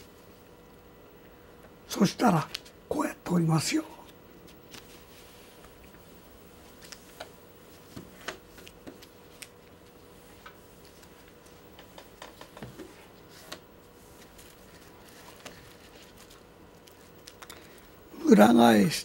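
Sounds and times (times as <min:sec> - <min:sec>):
faint steady hum: 0:00.0 - 0:19.0
paper crinkling: 0:04.0 - 0:17.8
paper tapping on table: 0:11.7 - 0:12.9.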